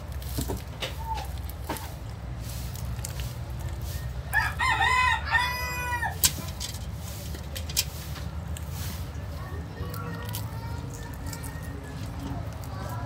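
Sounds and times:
rooster crowing: 4.3 - 6.2.

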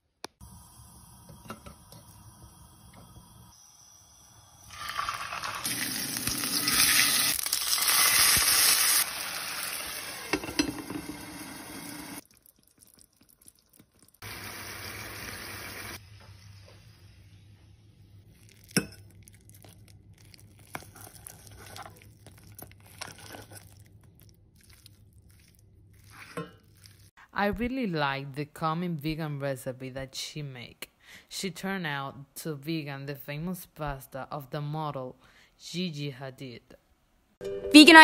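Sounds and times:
hot oil sizzling in a frying pan: 0.4 - 12.2, 14.2 - 17.5.

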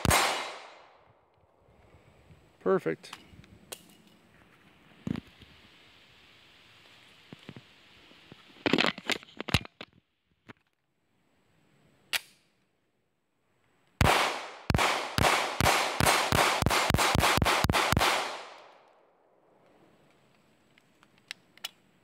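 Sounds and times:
pistol shots: 0.0 - 0.9, 14.0 - 18.8
gun click: 20.3 - 21.8.

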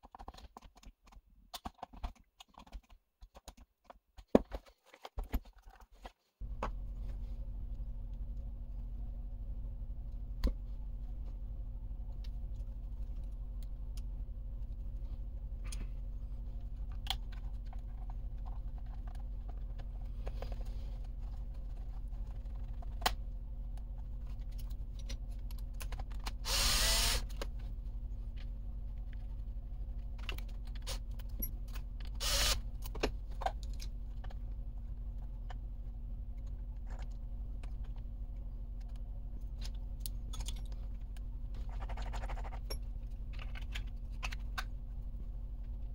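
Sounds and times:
steady low hum: 6.4 - 45.9
cordless drill whirring: 26.4 - 27.4, 32.2 - 32.6.

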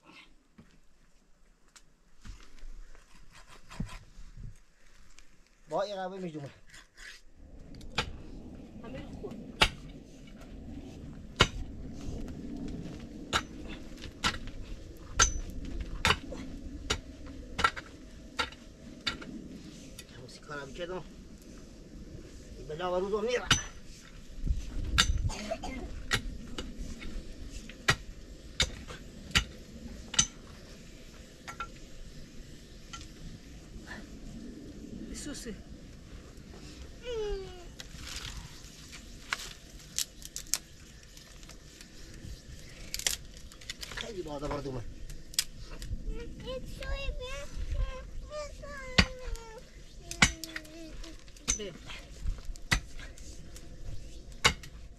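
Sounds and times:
metal tool striking stony earth: 9.6 - 9.9, 13.3 - 14.5, 15.1 - 16.2, 23.4 - 23.9, 24.9 - 25.3, 27.8 - 30.4, 51.4 - 51.8, 52.6 - 53.0, 54.4 - 54.8
sticks snapping and crackling: 37.8 - 42.0, 42.6 - 44.2, 45.0 - 45.9, 50.1 - 51.6.

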